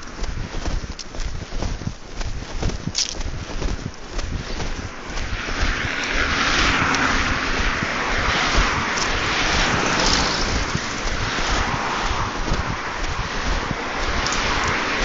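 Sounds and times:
wind rumbling on microphone: 0.0s - 15.0s
car driving past: 4.9s - 15.0s.

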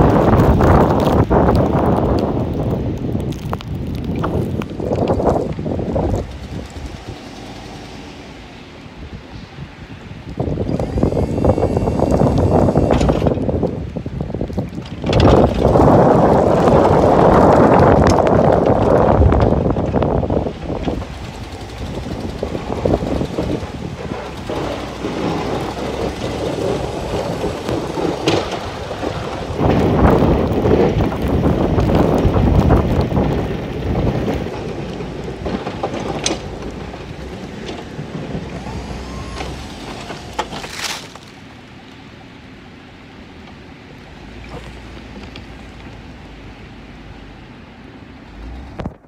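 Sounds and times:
plow blade scraping snow: 0.0s - 14.0s, 14.8s - 41.7s
truck engine running: 0.0s - 41.7s.

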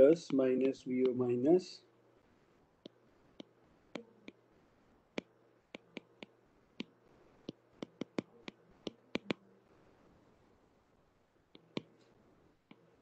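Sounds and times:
faint steady hum: 0.0s - 13.0s
stylus tapping on glass screen: 5.2s - 9.4s.

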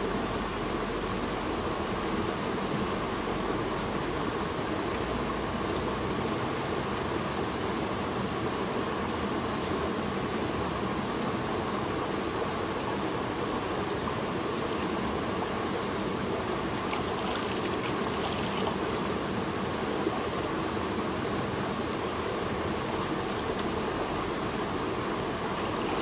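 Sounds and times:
stream running over rocks: 0.0s - 26.0s
water splashing by hand: 16.8s - 19.0s.

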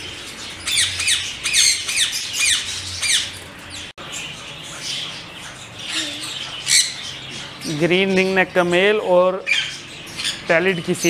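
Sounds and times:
parakeets squawking: 0.0s - 11.0s.

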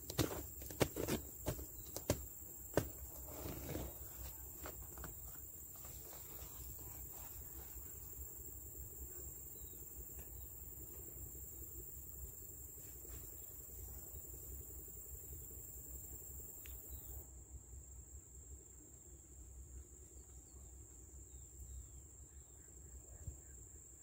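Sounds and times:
sharp scuffs and taps: 0.0s - 5.9s.

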